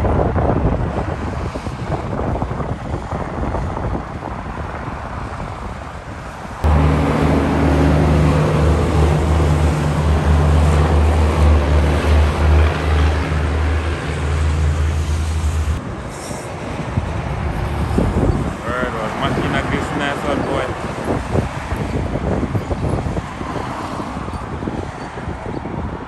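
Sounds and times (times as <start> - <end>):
highway traffic rumble: 0.0 - 26.0
wind buffeting microphone: 0.0 - 26.0
truck diesel engine drone: 6.5 - 21.2.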